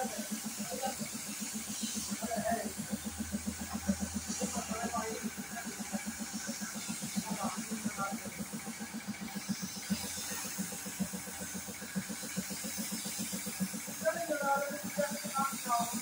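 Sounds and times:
spray gun hissing: 0.0s - 3.0s, 3.6s - 16.0s.

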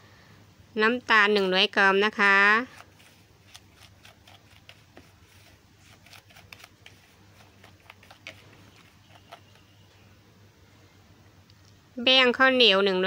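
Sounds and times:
low steady hum: 0.0s - 13.0s
plastic spoon scraping bowl: 2.7s - 9.7s.

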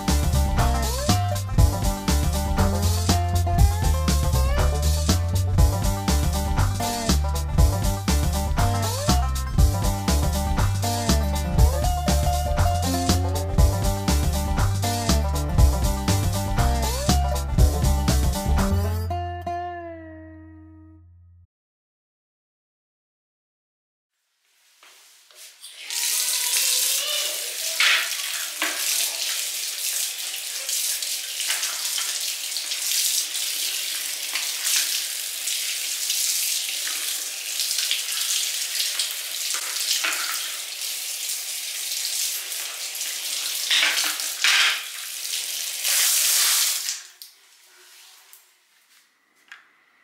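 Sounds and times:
water splashing from a tap: 25.4s - 47.4s.

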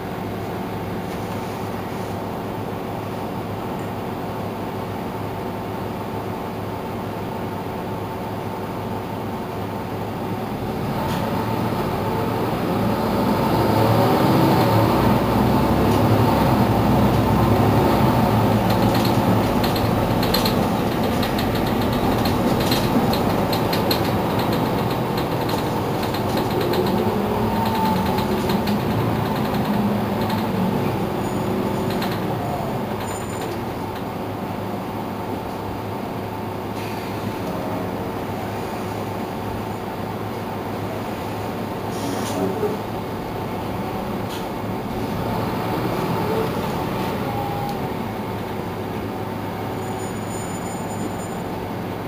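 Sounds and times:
bus engine driving: 0.0s - 52.0s
light rattling clicks: 18.5s - 34.1s.

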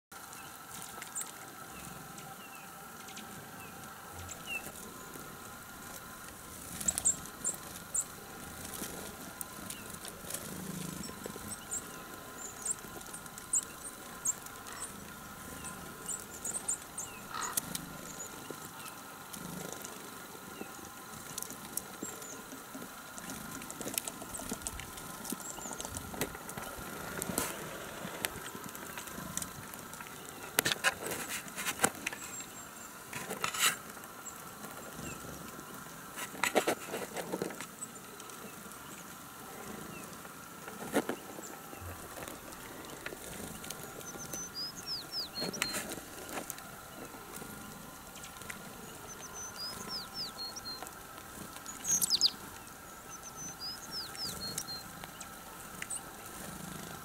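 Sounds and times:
faint steady hum: 0.1s - 57.0s
birds pecking clicks: 3.0s - 57.0s
high thin bird calls: 51.7s - 52.5s.

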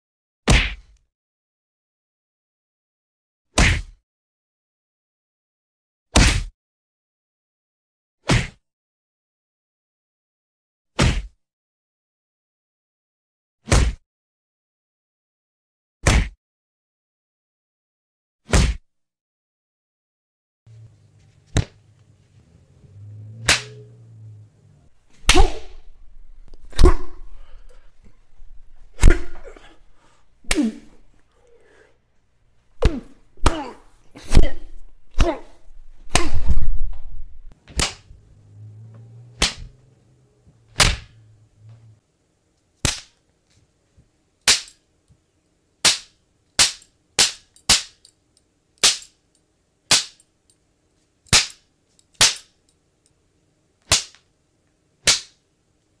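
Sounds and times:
punch sound effects: 0.5s - 0.9s, 3.6s - 4.0s, 6.2s - 6.5s, 8.2s - 8.6s, 11.0s - 11.4s, 13.7s - 14.0s, 16.0s - 16.4s, 18.5s - 18.8s, 40.8s - 41.2s.

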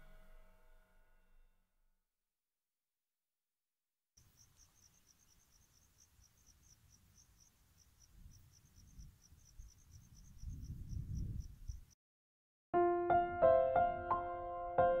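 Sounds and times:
crickets chirping: 4.2s - 12.0s.

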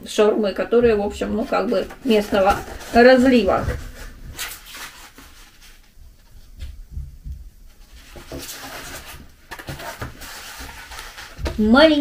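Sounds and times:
soft thumps: 6.5s - 7.7s.

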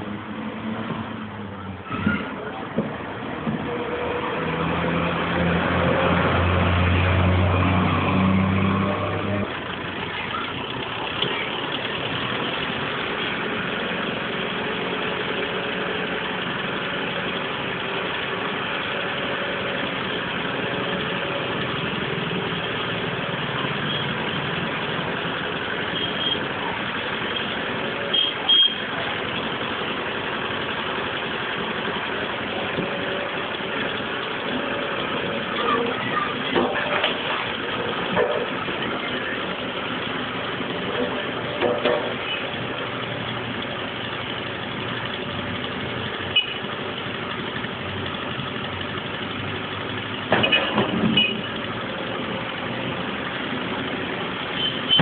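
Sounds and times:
diesel engine idling: 0.0s - 55.0s.

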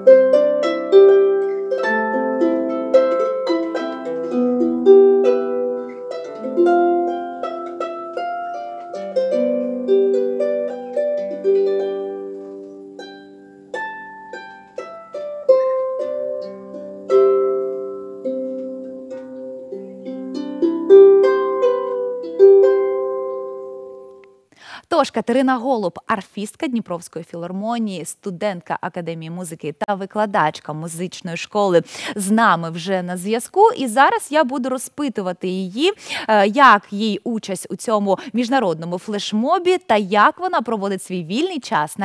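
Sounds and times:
solo harp plucked melody: 0.0s - 24.3s.

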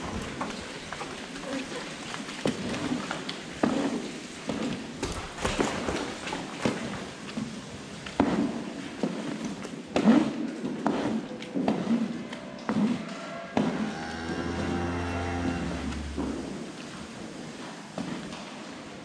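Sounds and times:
scraper on concrete: 9.9s - 12.2s.

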